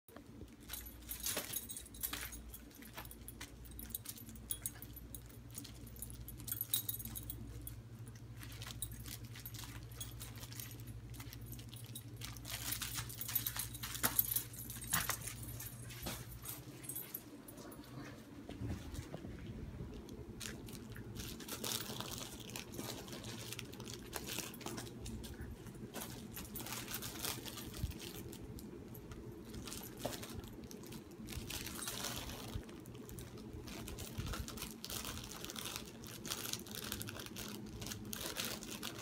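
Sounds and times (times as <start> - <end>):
steady low hum: 0.1 - 39.0
toy rattling and clicking: 8.4 - 15.9.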